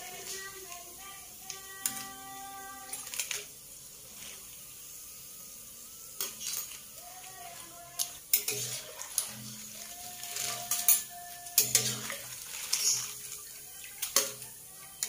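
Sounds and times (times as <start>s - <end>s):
oil sizzling: 0.0s - 15.0s
metal spatula scraping a pan: 6.2s - 15.0s.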